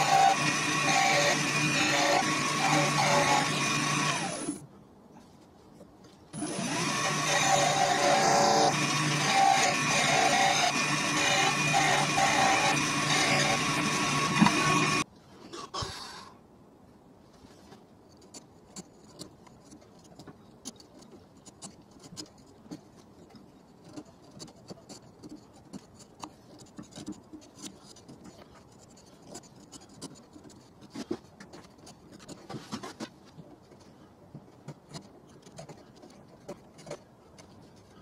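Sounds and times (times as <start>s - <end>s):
chisel scraping wood: 0.0s - 4.6s, 6.4s - 15.0s.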